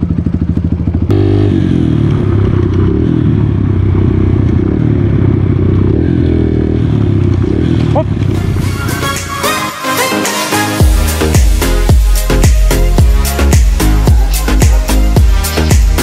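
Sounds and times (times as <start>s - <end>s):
dirt bike engine idling: 0.0s - 8.6s
dirt bike engine under throttle: 0.0s - 8.6s.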